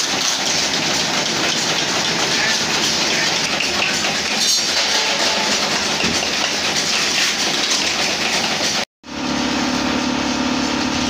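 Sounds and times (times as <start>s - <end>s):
machine clattering: 0.0s - 8.8s.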